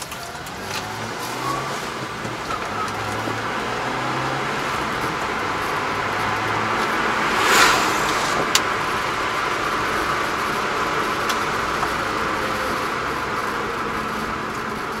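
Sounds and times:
engine and tyre noise in cab: 0:00.0 - 0:15.0
car swishing past: 0:02.8 - 0:09.6.

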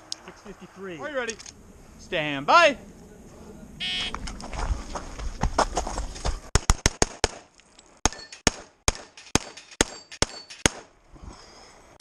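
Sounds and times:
pistol shots: 0:06.5 - 0:10.9.

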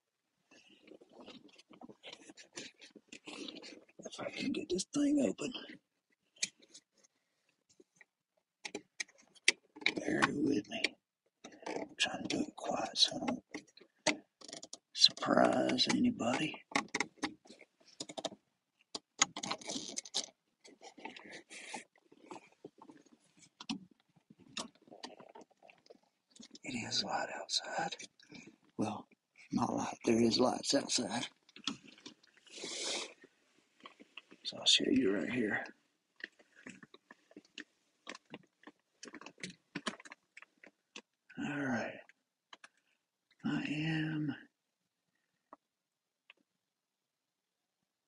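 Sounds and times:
man's voice: 0:29.6 - 0:31.3.

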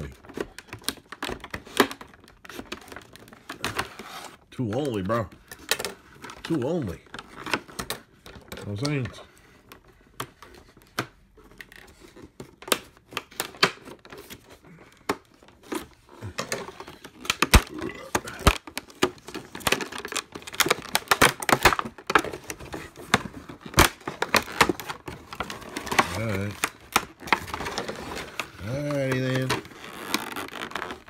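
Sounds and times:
plastic packaging crackling: 0:15.4 - 0:31.0.

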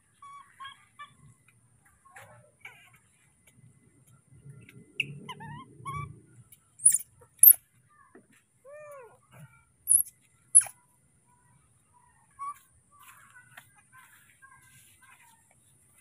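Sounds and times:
baby monkey squeaking: 0:05.0 - 0:06.2, 0:06.8 - 0:07.6, 0:09.9 - 0:10.8, 0:12.3 - 0:12.7
soft sliding monkey calls: 0:06.8 - 0:07.6, 0:09.9 - 0:10.8.

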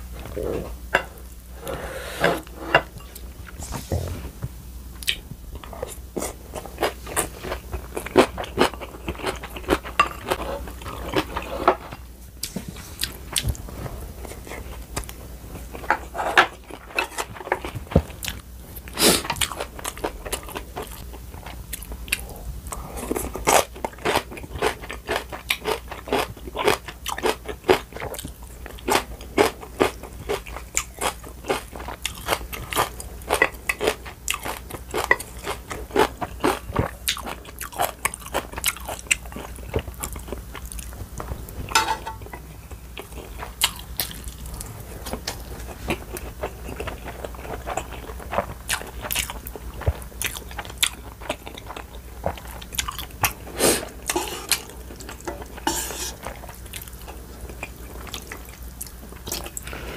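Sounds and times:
crunchy chewing: 0:16.6 - 0:59.8.

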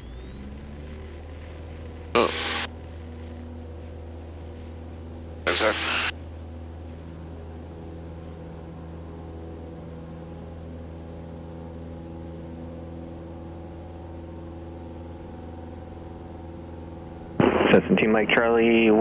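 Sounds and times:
piston engine idling: 0:00.0 - 0:05.7
faint high whine: 0:00.0 - 0:19.0.

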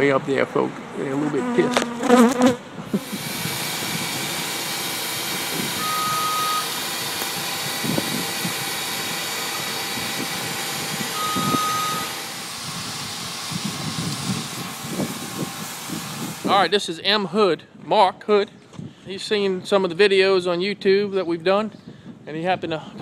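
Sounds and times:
rushing machine noise: 0:02.8 - 0:16.7
short single-pitch beeps: 0:05.8 - 0:06.7, 0:11.2 - 0:12.2.

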